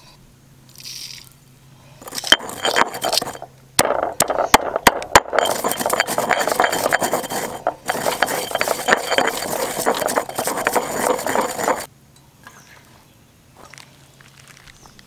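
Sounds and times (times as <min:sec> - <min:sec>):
stone pestle grinding in mortar: 0:02.0 - 0:11.9.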